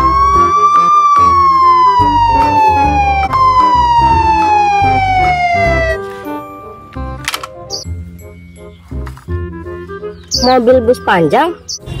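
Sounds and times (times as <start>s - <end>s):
police siren wailing: 0.0s - 6.0s
background music with steady beat: 0.0s - 12.0s.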